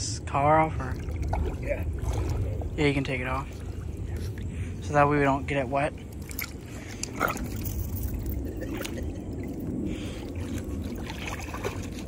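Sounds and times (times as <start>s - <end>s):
water sloshing and splashing: 0.6s - 12.0s
dog pawing in water: 6.1s - 8.2s, 10.2s - 12.0s.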